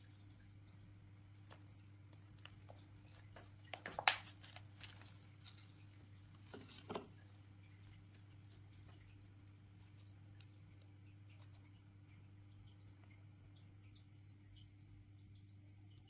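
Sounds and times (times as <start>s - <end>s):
low steady hum: 0.0s - 16.0s
crumbling soil rustling: 1.4s - 11.8s.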